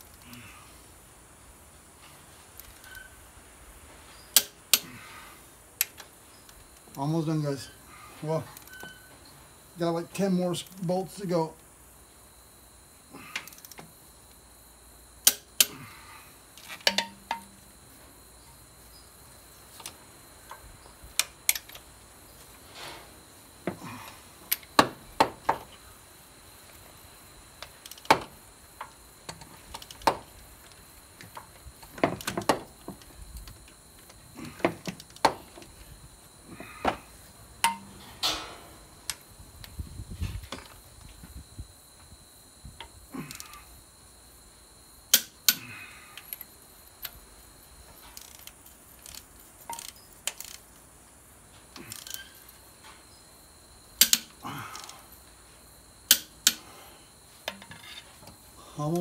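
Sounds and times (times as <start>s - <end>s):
torque wrench clicking on bolts: 48.2s - 50.6s, 51.8s - 52.3s, 54.0s - 54.9s, 56.1s - 56.6s.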